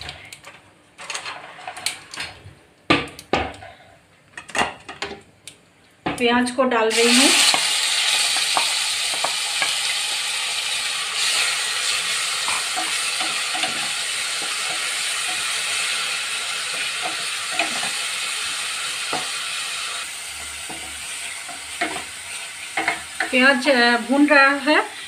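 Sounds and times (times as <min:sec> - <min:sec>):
paste sizzling in hot oil: 0:06.9 - 0:25.0.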